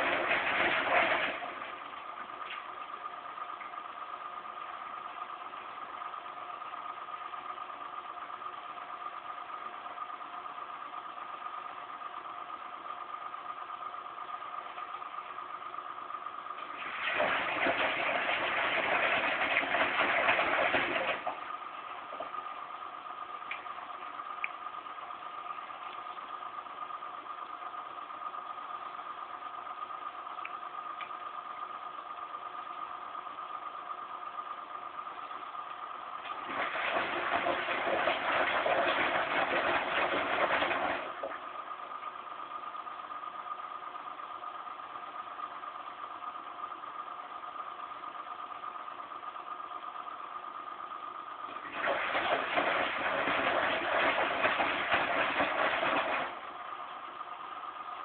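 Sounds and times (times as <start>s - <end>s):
washing machine motor hum: 0.0s - 10.7s, 12.5s - 28.2s, 34.7s - 42.3s, 51.4s - 58.0s.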